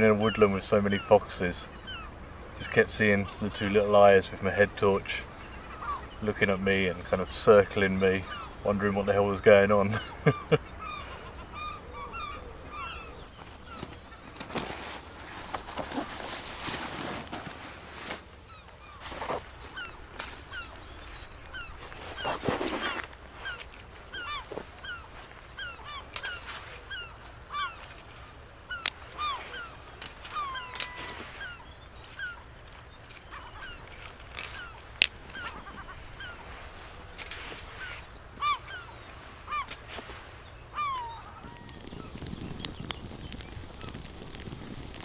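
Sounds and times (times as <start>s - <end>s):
birds calling in short notes: 0.0s - 14.7s, 18.0s - 45.0s
rucksack rustling: 13.3s - 45.0s
fire cracking in stove: 41.4s - 45.0s.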